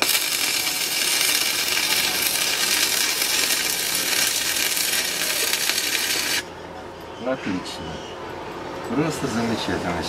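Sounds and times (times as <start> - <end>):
welding arc crackling hiss: 0.0 - 6.5.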